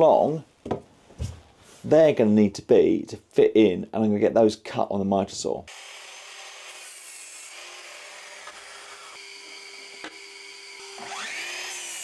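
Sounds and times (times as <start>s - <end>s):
miter saw cutting wood: 5.7s - 12.0s.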